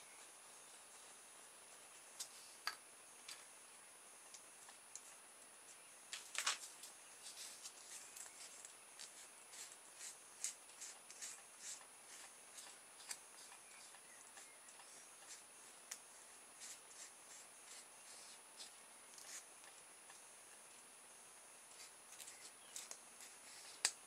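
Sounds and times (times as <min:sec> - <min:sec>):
faint high-pitched whine: 0:00.0 - 0:24.0
rustles and light clicks: 0:04.3 - 0:20.9.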